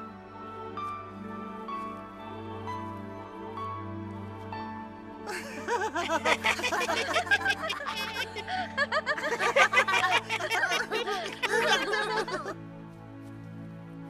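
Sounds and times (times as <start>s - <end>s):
soft background music: 0.0s - 14.0s
cartoon characters laughing: 5.3s - 12.5s.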